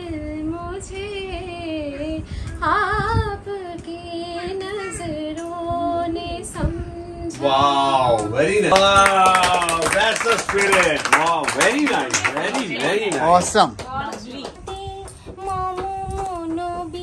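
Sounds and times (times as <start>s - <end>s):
woman singing unaccompanied: 0.0s - 7.6s, 13.9s - 17.0s.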